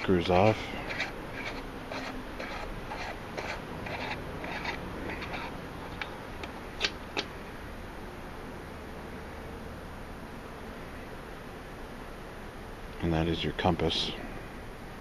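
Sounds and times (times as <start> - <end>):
cap unscrewing scrapes: 0.0 - 6.2.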